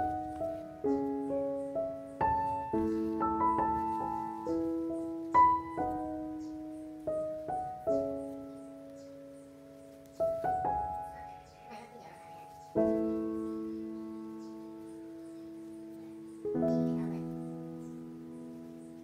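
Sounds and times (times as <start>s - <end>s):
piano single notes: 0.0s - 19.0s.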